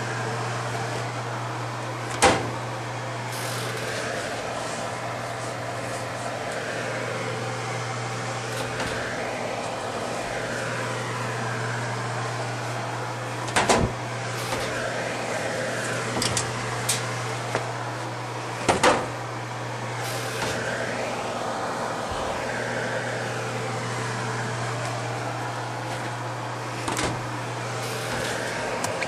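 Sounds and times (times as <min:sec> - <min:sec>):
low machine hum with rushing: 0:00.0 - 0:29.0.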